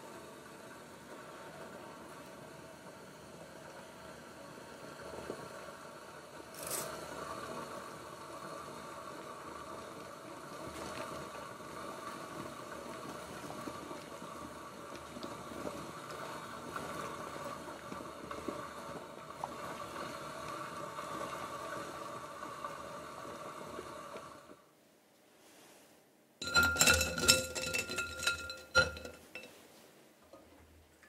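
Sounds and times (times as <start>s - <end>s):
water boiling and bubbling: 0.0s - 24.7s, 26.4s - 29.6s
spatula tapping saucepan: 26.4s - 29.6s.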